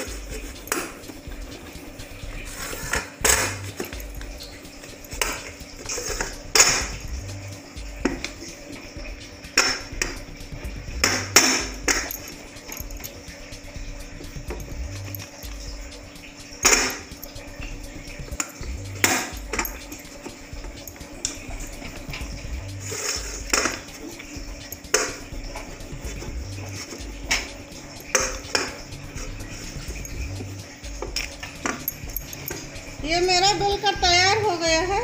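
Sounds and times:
rolling pin knocking metal plate: 11.0s - 12.1s.

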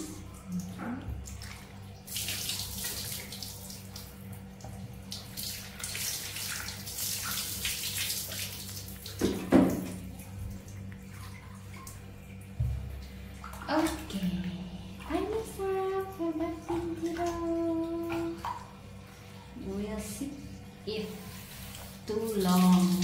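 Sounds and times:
water splashing in a bath: 0.0s - 23.0s.

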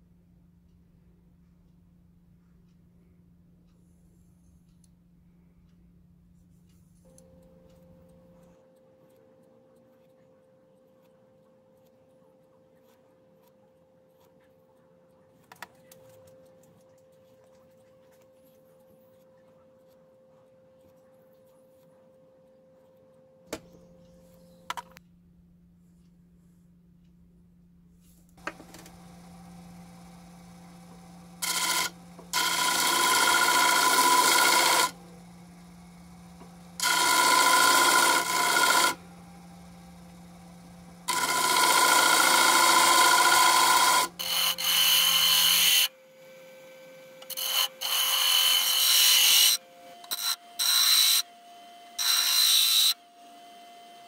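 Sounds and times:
disc sander motor humming: 28.4s - 45.9s
grinder high whine: 28.4s - 46.0s
wood rasping on sanding disc: 31.4s - 35.0s, 36.8s - 39.0s, 41.1s - 45.9s.

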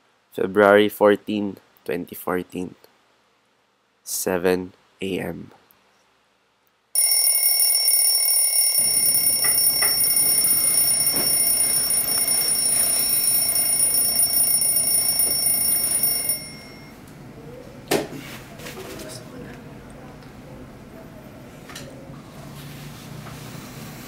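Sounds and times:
mobile phone ringing: 7.0s - 17.0s.

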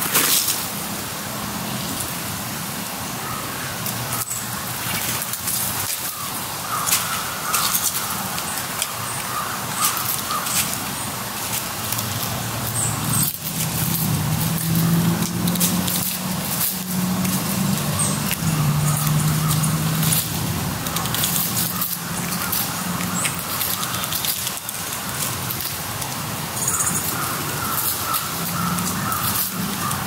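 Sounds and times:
birds calling: 3.2s - 30.0s
low vehicle hum: 11.5s - 30.0s.

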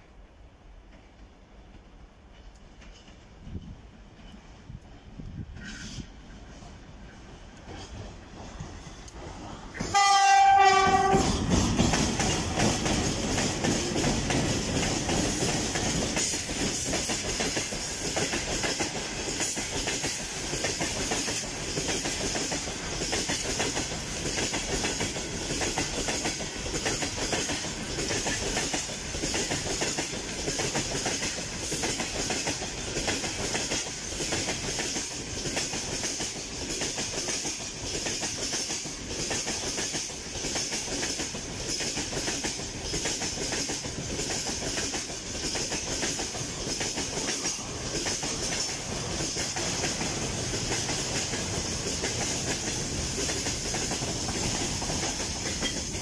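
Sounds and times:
train wheels clattering on rails: 0.8s - 56.0s
rushing hiss: 11.2s - 56.0s.

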